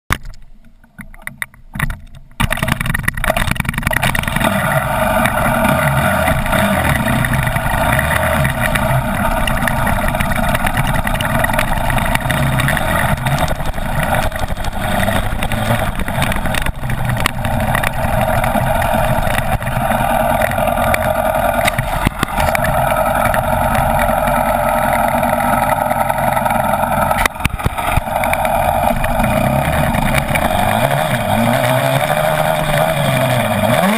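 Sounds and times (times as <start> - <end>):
dirt bike engine running: 1.8 - 33.9
rush of noise: 2.4 - 33.9.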